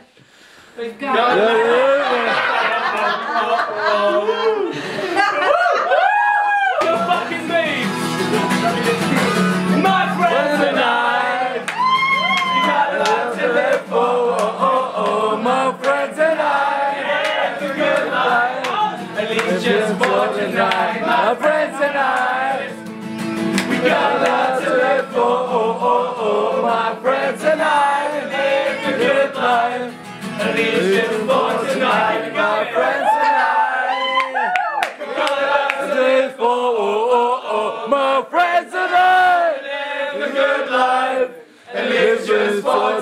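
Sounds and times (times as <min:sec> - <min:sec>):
group of people singing: 0:01.1 - 0:05.3, 0:09.2 - 0:34.1, 0:34.9 - 0:43.0
strummed acoustic guitar: 0:06.8 - 0:32.8.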